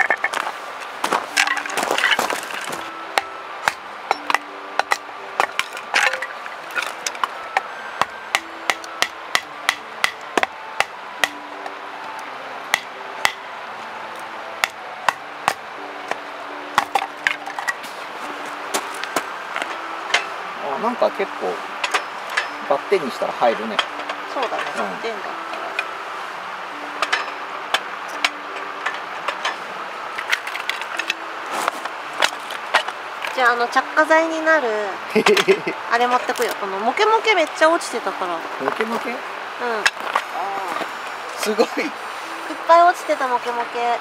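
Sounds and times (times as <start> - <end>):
wood cracking and splintering: 0.0 - 2.9
firewood splitting knocks: 0.0 - 7.3, 16.8 - 18.0.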